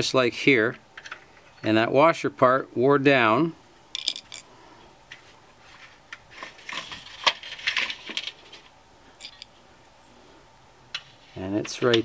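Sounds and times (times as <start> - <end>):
screwdriver clinking on metal: 9.2 - 9.5.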